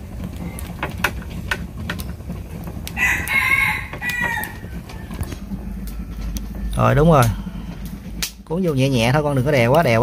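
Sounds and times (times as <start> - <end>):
rooster crowing: 3.0 - 5.4.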